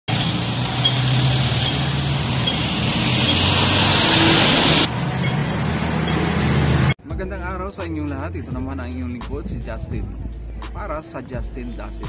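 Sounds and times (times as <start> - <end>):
road noise: 0.0 - 7.0, 7.6 - 12.0
bus engine passing: 0.1 - 7.0.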